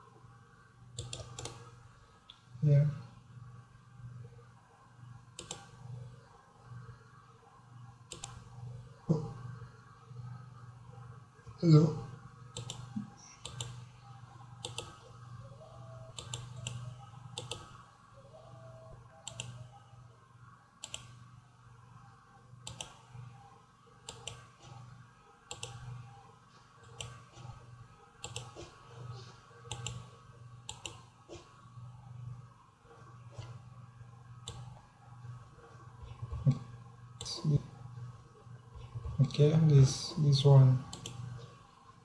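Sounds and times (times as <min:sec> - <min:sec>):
faint low hum: 0:00.0 - 0:42.0
computer mouse clicking: 0:00.9 - 0:02.4, 0:05.3 - 0:06.1, 0:08.0 - 0:08.6, 0:12.5 - 0:13.9, 0:14.6 - 0:17.8, 0:19.2 - 0:19.8, 0:20.8 - 0:21.3, 0:22.6 - 0:23.3, 0:24.0 - 0:24.9, 0:25.5 - 0:31.6, 0:34.4 - 0:34.9, 0:36.0 - 0:37.5, 0:40.9 - 0:41.6.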